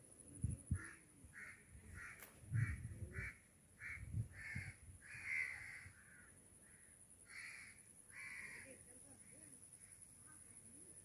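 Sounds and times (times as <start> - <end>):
crows cawing: 0.8 - 8.8.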